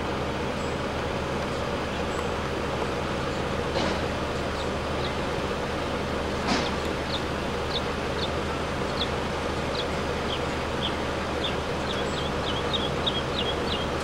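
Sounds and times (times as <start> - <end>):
small bird chirping: 4.3 - 5.4, 6.6 - 14.0.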